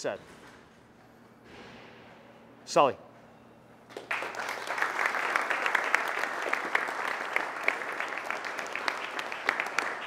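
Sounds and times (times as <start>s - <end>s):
people applauding: 3.9s - 10.0s.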